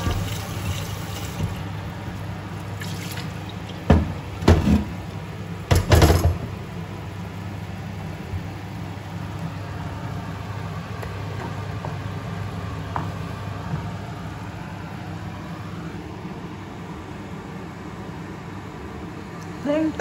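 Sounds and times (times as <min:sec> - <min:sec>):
sauce bubbling in frying pan: 0:00.0 - 0:04.4.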